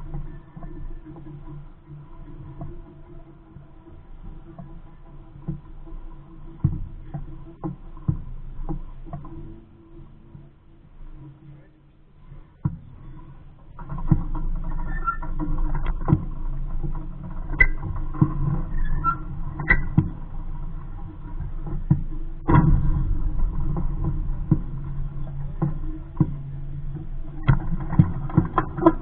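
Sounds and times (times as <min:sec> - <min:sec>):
knocks and clicks from boat hull: 0:05.4 - 0:09.7, 0:13.7 - 0:29.0
wind rumbling on microphone: 0:12.2 - 0:29.0.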